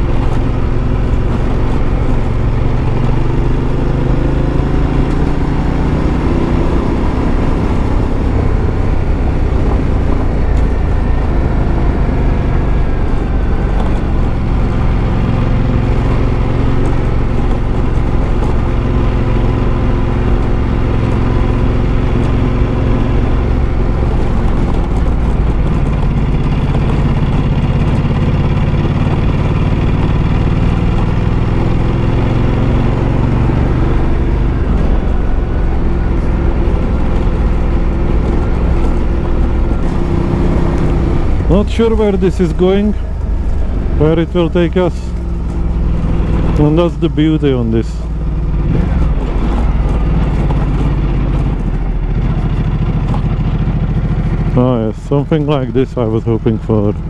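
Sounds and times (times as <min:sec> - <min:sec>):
motorcycle engine running: 0:00.0 - 0:57.0
wind and road noise: 0:00.0 - 0:57.0.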